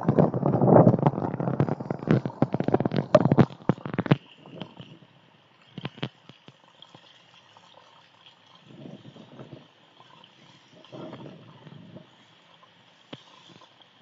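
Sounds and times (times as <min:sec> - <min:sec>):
faint hiss: 0:04.3 - 0:14.0.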